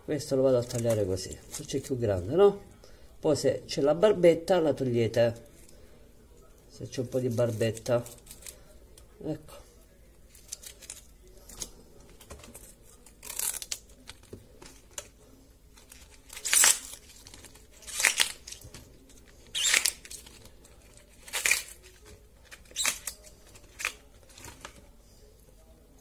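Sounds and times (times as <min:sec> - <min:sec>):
artichoke leaves tearing: 0:10.3 - 0:11.7, 0:12.6 - 0:14.2, 0:15.7 - 0:24.8.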